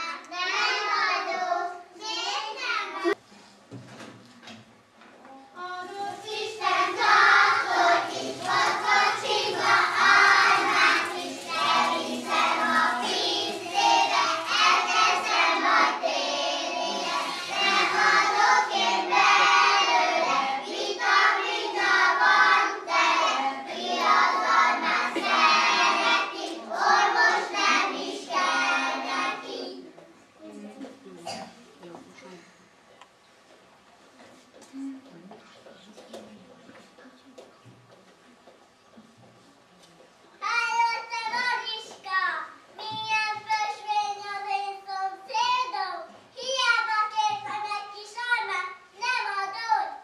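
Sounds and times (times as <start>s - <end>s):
young children singing: 0.0s - 3.2s, 5.6s - 30.1s.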